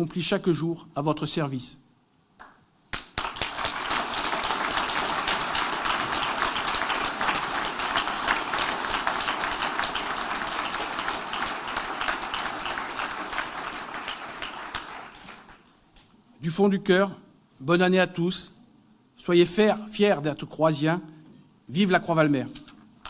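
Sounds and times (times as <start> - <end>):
audience applauding: 3.0 - 15.7.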